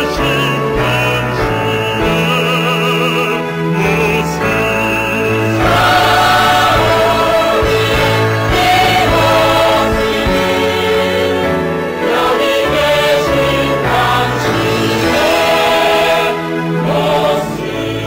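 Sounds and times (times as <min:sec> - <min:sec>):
man singing: 0:00.0 - 0:10.5
cast singing in chorus: 0:00.0 - 0:18.0
orchestra playing: 0:00.0 - 0:18.0.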